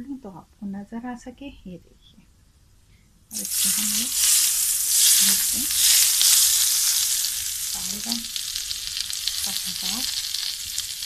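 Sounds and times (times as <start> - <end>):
hot oil sizzling: 3.3 - 11.0.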